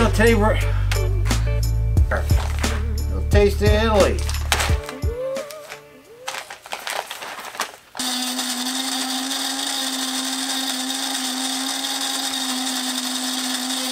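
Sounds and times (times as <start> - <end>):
coffee bag rustling: 2.1 - 3.0, 4.0 - 8.2
small electric motor whirring: 8.0 - 13.9.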